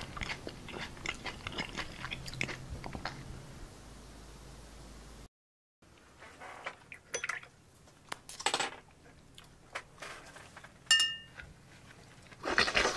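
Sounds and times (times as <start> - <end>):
ringing clink: 10.9 - 11.3
cutlery and dishes clinking: 10.9 - 11.4.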